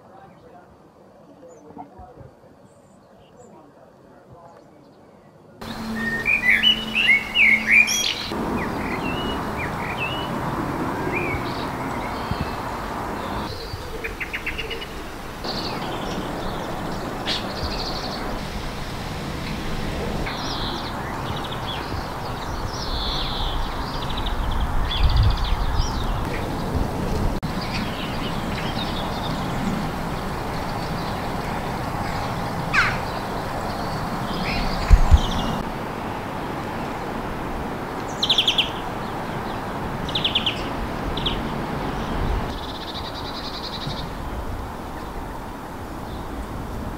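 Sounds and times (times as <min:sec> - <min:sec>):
birds singing and chirping: 0:04.4 - 0:35.7, 0:38.1 - 0:46.4
bright bird whistle: 0:05.6 - 0:10.3
background hiss: 0:05.6 - 0:46.9.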